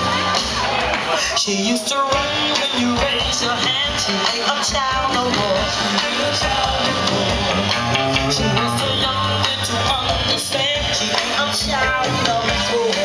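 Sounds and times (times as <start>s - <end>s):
drums: 0.0s - 13.0s
soul band playing: 1.9s - 13.0s
bass guitar: 5.0s - 12.8s
electric guitar: 5.3s - 13.0s.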